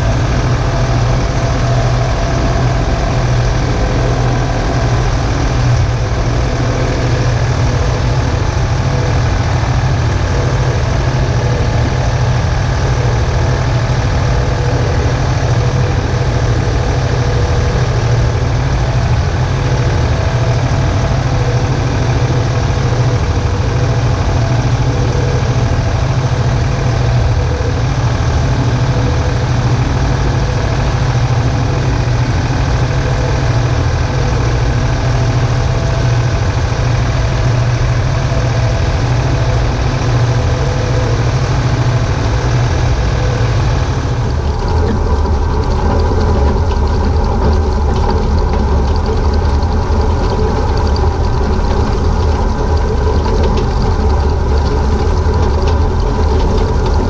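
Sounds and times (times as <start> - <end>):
tractor diesel engine under load: 0.0 - 57.0.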